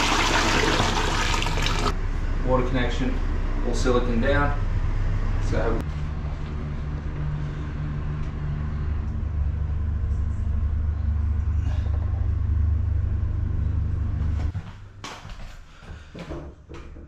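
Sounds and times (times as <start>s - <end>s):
low rumble: 1.9s - 15.0s.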